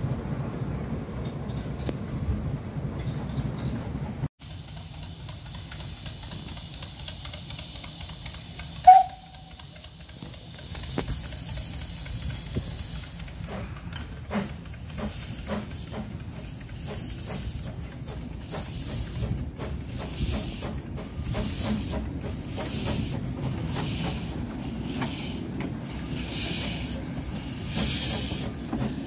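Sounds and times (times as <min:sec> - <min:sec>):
locomotive exhaust beats: 0:03.0 - 0:29.0
steam hissing from drain cocks: 0:04.4 - 0:29.0
steam locomotive whistle toot: 0:06.6 - 0:10.0.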